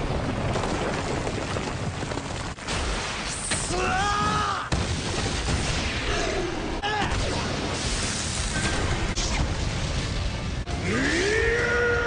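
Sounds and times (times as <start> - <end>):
explosion rumble and crackle: 0.0 - 12.0.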